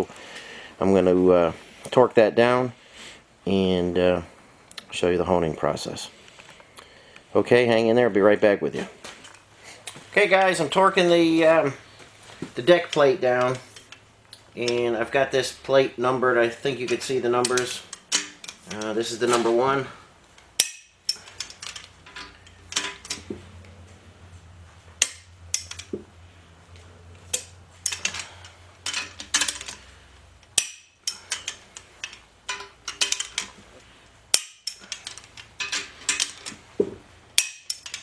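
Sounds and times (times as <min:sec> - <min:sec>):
low steady hum: 0:00.0 - 0:38.0
socket clinking on bolts: 0:25.0 - 0:26.0, 0:27.3 - 0:29.8, 0:30.4 - 0:33.6, 0:37.4 - 0:38.0.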